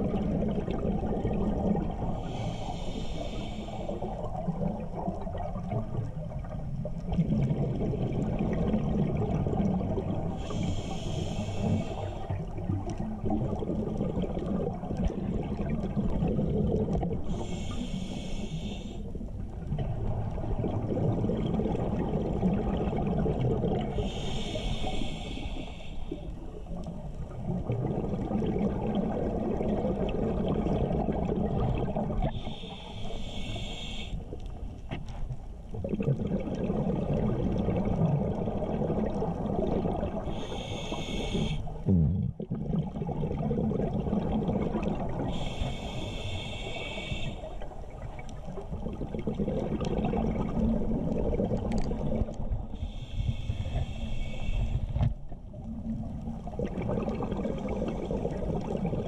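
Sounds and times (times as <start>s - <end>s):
rumbling exhaled bubbles: 0.0s - 2.4s, 3.9s - 17.7s, 19.2s - 24.2s, 26.4s - 32.4s, 35.6s - 40.5s, 41.3s - 46.0s, 47.6s - 52.9s, 54.8s - 59.0s
hissing regulator inhalations: 2.2s - 4.3s, 10.4s - 12.6s, 17.3s - 19.2s, 23.9s - 26.4s, 32.2s - 34.5s, 40.2s - 41.9s, 45.2s - 47.8s, 52.7s - 55.2s.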